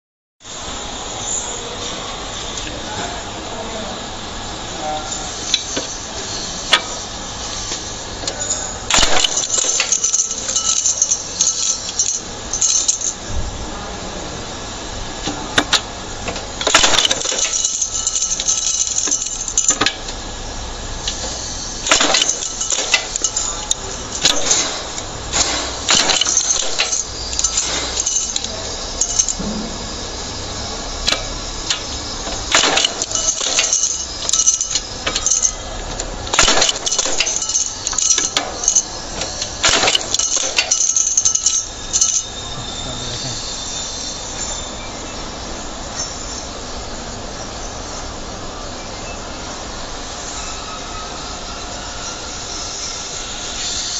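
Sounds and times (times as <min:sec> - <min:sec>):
machine motor humming: 0:00.5 - 0:43.4
rivet machine clinking: 0:05.4 - 0:13.3, 0:15.2 - 0:44.6.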